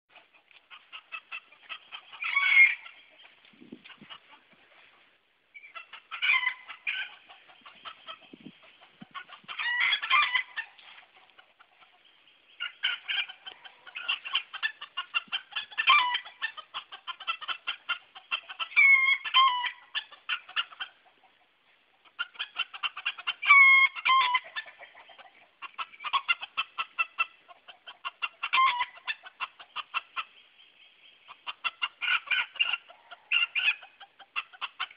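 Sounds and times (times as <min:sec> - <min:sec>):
roosters clucking in alarm: 0:00.1 - 0:04.9, 0:05.5 - 0:34.9
rooster squawks: 0:00.7 - 0:03.0, 0:05.6 - 0:08.2, 0:09.1 - 0:10.8, 0:12.6 - 0:20.9, 0:22.2 - 0:25.0, 0:28.1 - 0:30.0.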